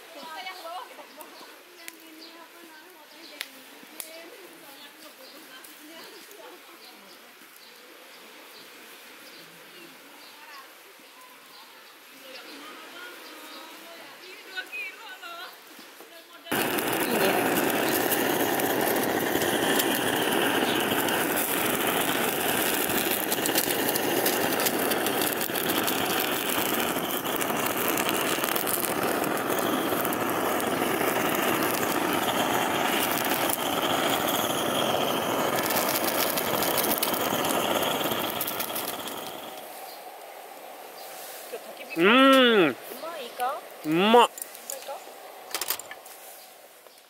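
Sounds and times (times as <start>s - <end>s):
blow torch hissing: 16.5s - 46.8s.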